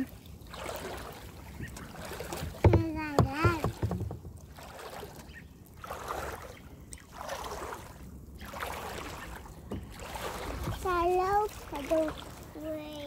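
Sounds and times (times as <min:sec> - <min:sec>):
paddle swishing through water: 0:00.0 - 0:13.0.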